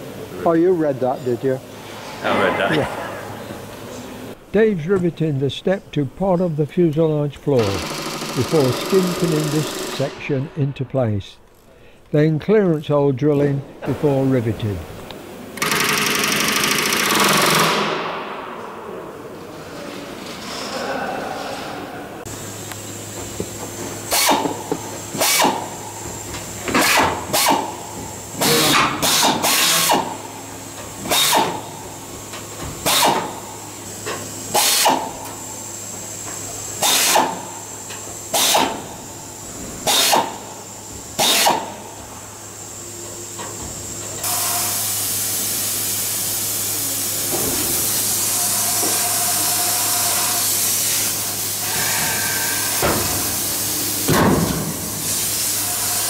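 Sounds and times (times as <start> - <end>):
air drill drilling in short bursts: 7.6 - 10.1, 15.6 - 17.8, 32.8 - 33.2, 34.5 - 35.1, 36.8 - 37.4, 38.3 - 38.8, 39.8 - 40.4, 41.2 - 41.7
steady hiss: 22.2 - 56.0.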